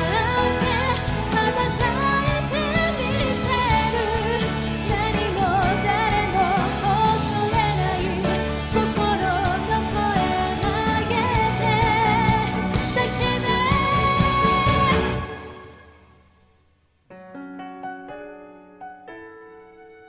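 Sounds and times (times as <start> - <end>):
woman singing pop ballad: 0.0 - 15.8.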